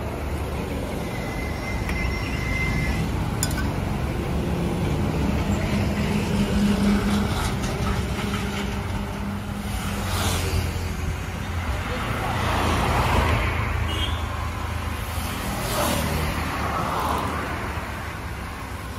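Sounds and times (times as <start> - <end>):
road traffic: 0.0 - 18.9
light clink: 3.4 - 3.8.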